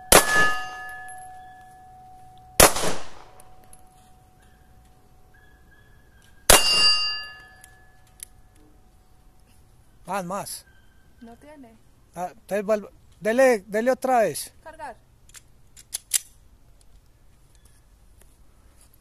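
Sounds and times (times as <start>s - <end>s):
pistol shots: 0.0s - 1.1s, 2.6s - 3.5s, 6.5s - 7.2s
metallic ring: 0.0s - 2.6s, 6.5s - 8.2s.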